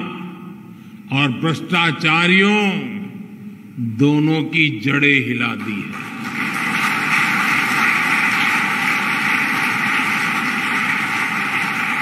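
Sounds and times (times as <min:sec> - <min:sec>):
large audience applauding: 0:05.8 - 0:12.0.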